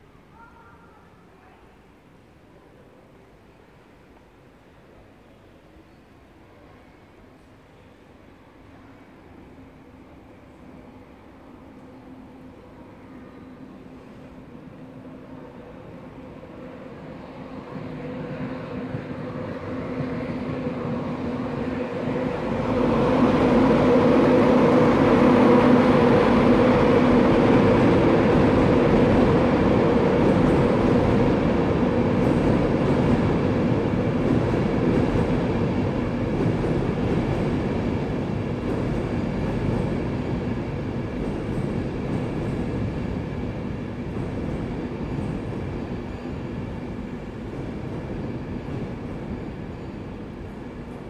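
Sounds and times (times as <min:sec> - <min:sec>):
passenger train rumbling: 0:00.0 - 0:51.0.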